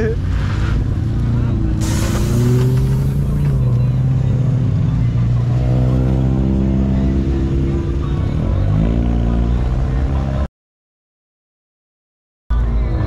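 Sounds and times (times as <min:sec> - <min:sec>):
car engine revving: 0:00.3 - 0:10.2.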